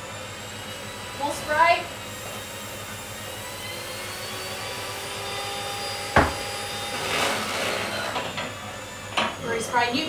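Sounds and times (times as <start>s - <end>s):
electric hand mixer running: 0.0s - 10.0s
sharp knock: 6.2s - 6.4s.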